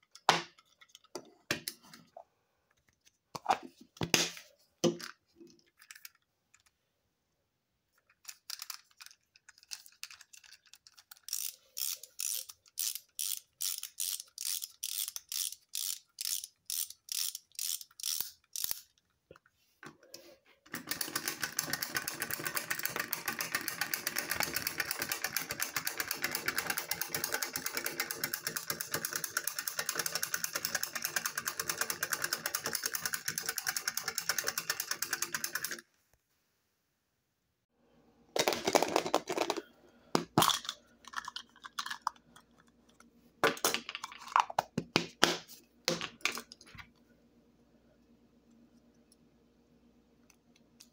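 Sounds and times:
wind-up toy ratchet clicking: 10.4s - 19.0s, 20.8s - 35.8s.

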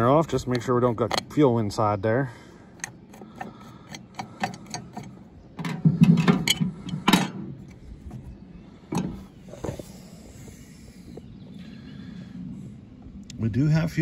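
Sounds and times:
knocks and rattles of cover: 2.8s - 7.5s.

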